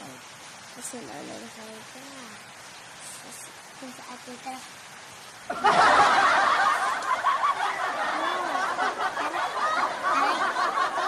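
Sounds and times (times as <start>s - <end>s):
laughter: 5.5s - 11.0s.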